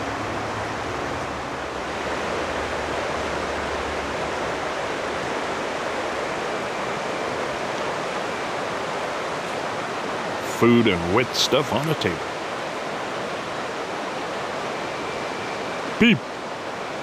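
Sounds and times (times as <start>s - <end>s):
river rushing over rocks: 0.0s - 17.0s.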